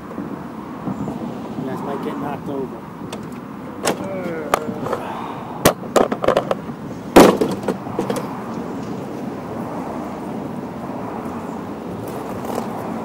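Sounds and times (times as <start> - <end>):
steady background noise: 0.0 - 13.0
sharp knocks and clanks: 5.6 - 8.6.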